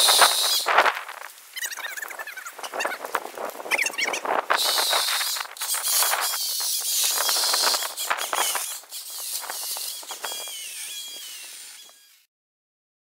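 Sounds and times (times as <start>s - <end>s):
chainsaw motor whine: 0.0s - 0.7s, 4.6s - 12.3s.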